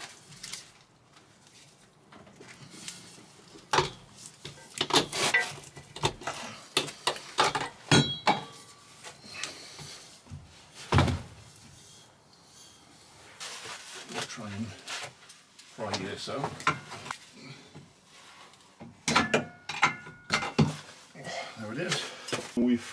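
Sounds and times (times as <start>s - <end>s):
metal clinks and knocks: 7.4s - 8.7s
metallic ring: 7.9s - 8.8s.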